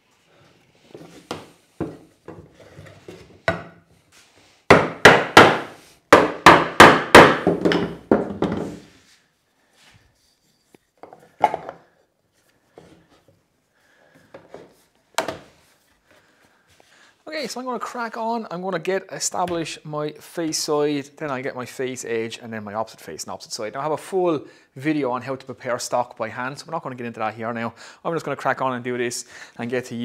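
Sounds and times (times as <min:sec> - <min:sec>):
wooden knocks: 0:04.7 - 0:08.8.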